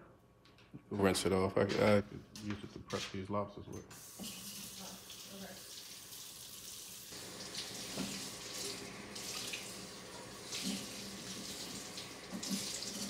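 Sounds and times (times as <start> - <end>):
tap water running into sink: 4.0 - 13.0.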